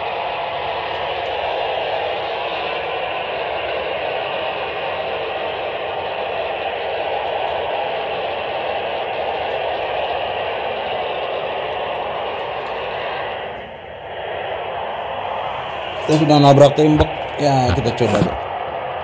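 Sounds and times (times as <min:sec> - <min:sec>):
radio static hiss: 0:15.7 - 0:18.4.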